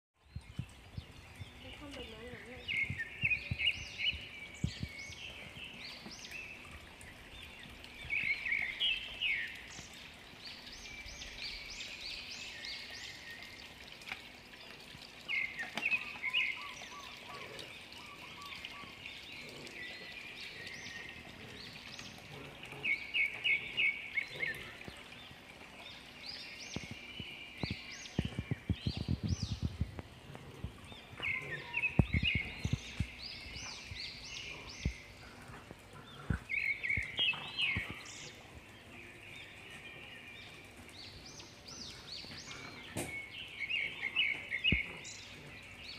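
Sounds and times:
birds chirping: 0.2 - 45.9
water fountain trickling: 0.2 - 45.9
dull low thumps: 2.7 - 5.7, 27.6 - 31.3, 31.9 - 34.2.

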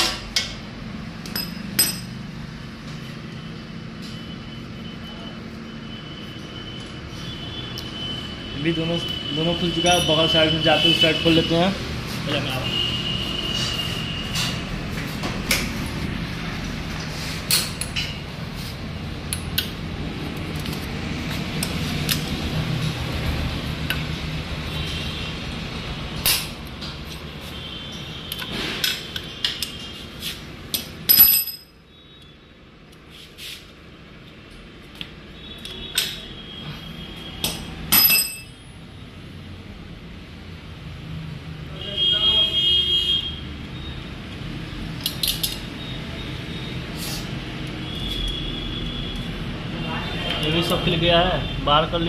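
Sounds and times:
metallic clinks of spanner and bolts: 31.1 - 31.8, 37.9 - 38.6.

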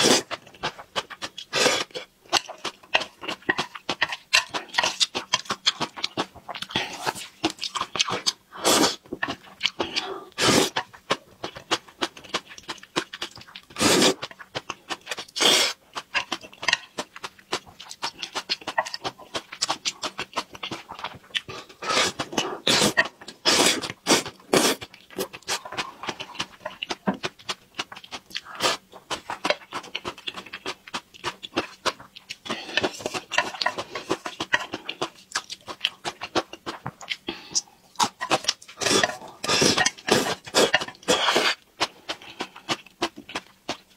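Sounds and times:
wet chewing and lip smacks: 0.4 - 8.4, 10.7 - 43.9
noodles slurped: 13.7 - 14.3.

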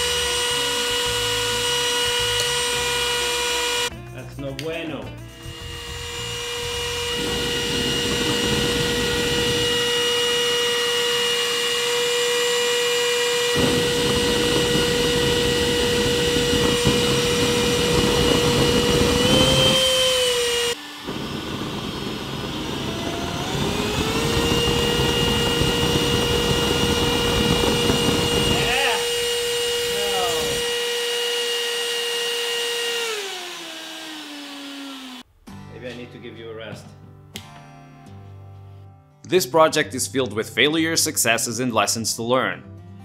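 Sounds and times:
electric fan high whine: 5.4 - 35.2
rushing airflow: 6.6 - 10.2, 13.5 - 30.7
flame burning with deep rushing: 7.1 - 9.9, 13.6 - 29.0.

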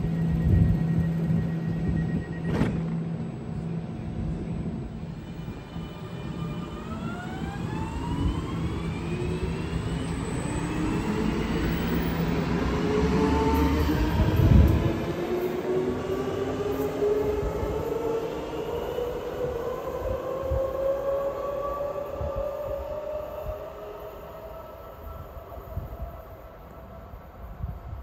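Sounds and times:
train wheel rumble: 0.0 - 23.8
traction motor whine rising: 5.2 - 24.6.

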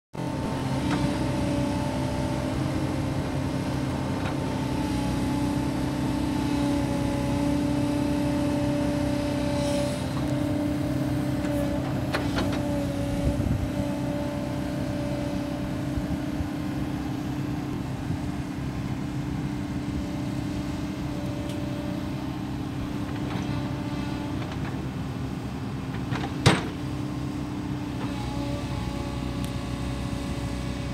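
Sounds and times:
hydraulic whine: 0.2 - 25.0
excavator diesel engine running: 0.2 - 30.9
short clunks: 25.9 - 26.9.

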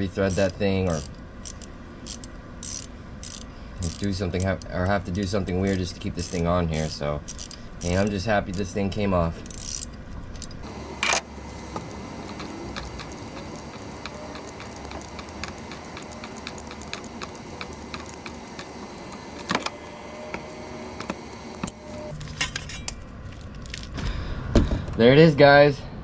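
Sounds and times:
metal tools clicking and clinking: 0.1 - 6.5, 7.2 - 8.7, 9.4 - 19.8.

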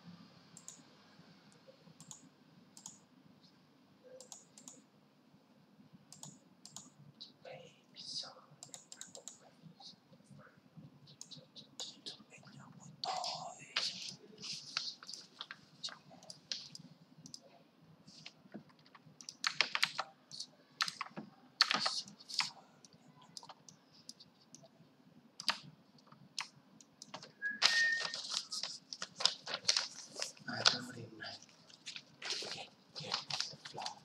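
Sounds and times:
keyboard keys clicking: 18.2 - 20.1, 20.8 - 22.6, 25.4 - 28.3.

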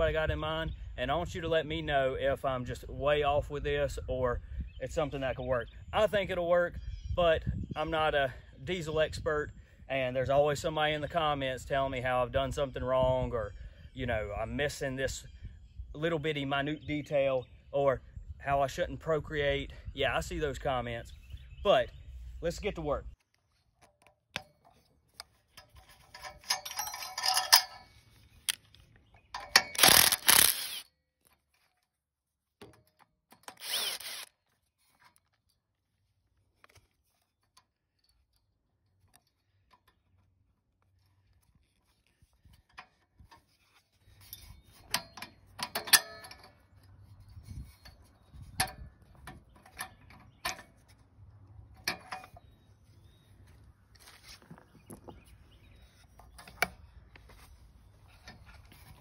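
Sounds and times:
metal tools clinking: 25.6 - 28.7, 29.3 - 30.5, 44.1 - 46.8.

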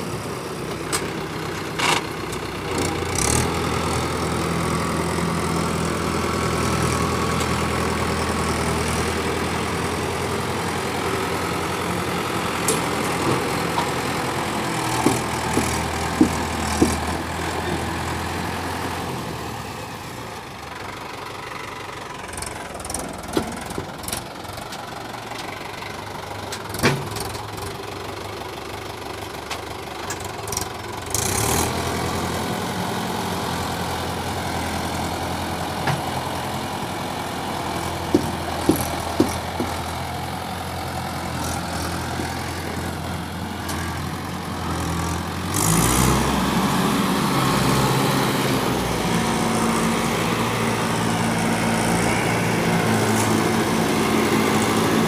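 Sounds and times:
tractor diesel engine idling: 0.0 - 55.0.

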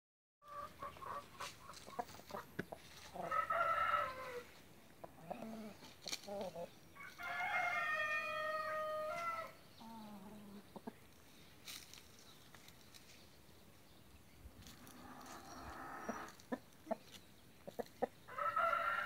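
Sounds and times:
chickens clucking: 0.4 - 6.8, 7.8 - 13.2, 14.5 - 19.0
rooster crowing: 3.2 - 4.5, 7.0 - 9.6, 18.3 - 19.0.

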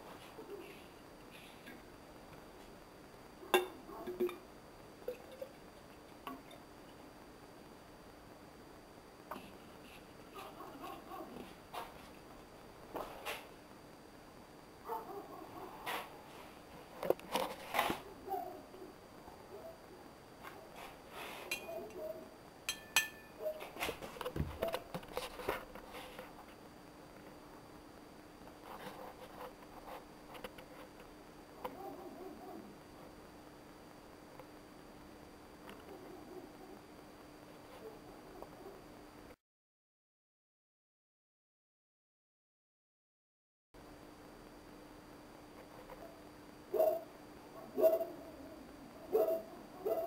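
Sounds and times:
glass and tin can clinking: 22.7 - 23.4.

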